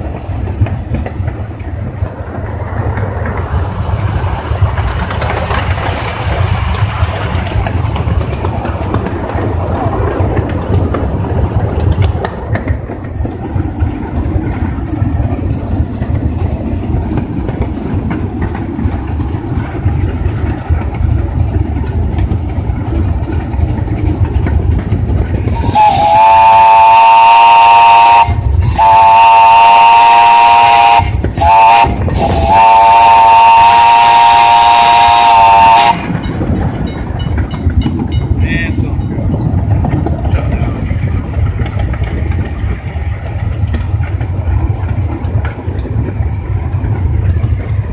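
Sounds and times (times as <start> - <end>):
steam locomotive rumbling: 0.0 - 47.9
steam whistle blasts: 25.5 - 36.1.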